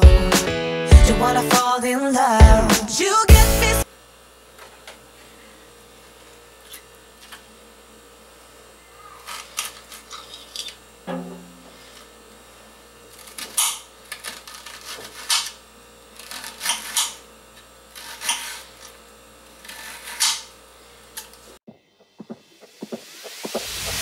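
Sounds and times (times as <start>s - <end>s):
music: 0.0s - 3.8s.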